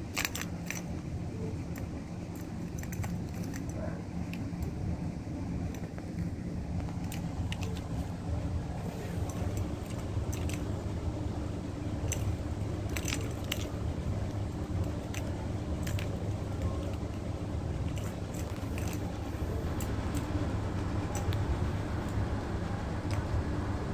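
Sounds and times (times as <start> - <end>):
plastic toy clicks and knocks: 0.0 - 0.9, 12.9 - 13.7, 14.8 - 17.1
steady low hum: 0.0 - 23.9
ball rattling in plastic track: 9.0 - 10.9.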